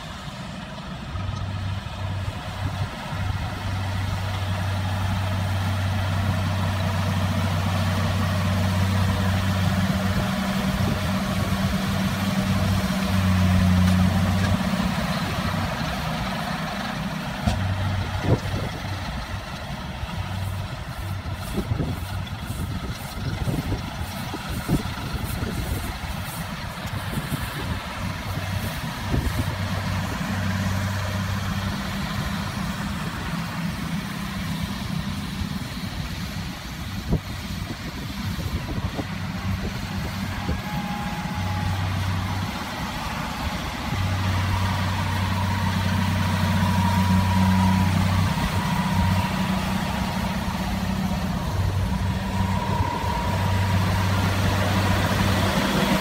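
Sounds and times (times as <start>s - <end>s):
baler low hum: 0.0s - 56.0s
tractor engine drone: 0.0s - 56.0s.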